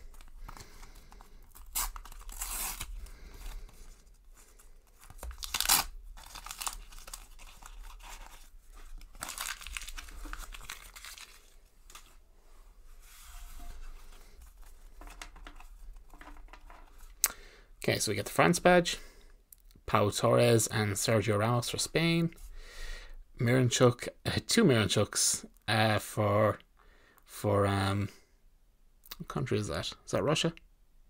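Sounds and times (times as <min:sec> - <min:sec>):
wrappers crinkling: 0:00.0 - 0:03.9, 0:04.9 - 0:12.2
foil packets tearing: 0:00.6 - 0:03.7, 0:05.2 - 0:12.1.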